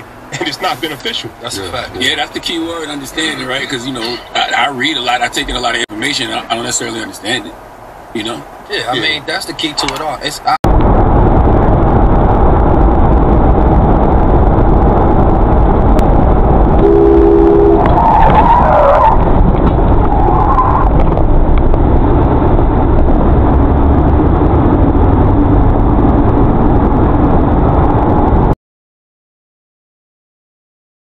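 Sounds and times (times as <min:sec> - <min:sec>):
car road and engine noise: 0:00.0 - 0:28.6
two-note tone: 0:16.8 - 0:17.9
wavering squeal: 0:16.8 - 0:21.0.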